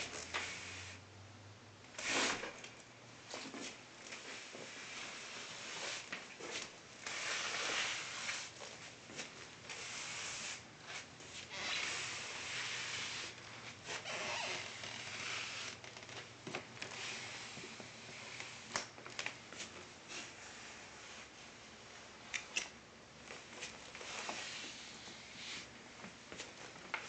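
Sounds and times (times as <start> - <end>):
slipper scraping on tile floor: 3.3 - 18.7, 23.3 - 27.0.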